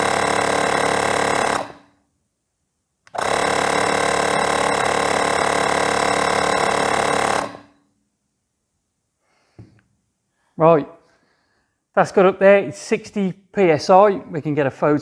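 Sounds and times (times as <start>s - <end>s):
air compressor running: 0.0s - 2.0s, 3.1s - 7.8s.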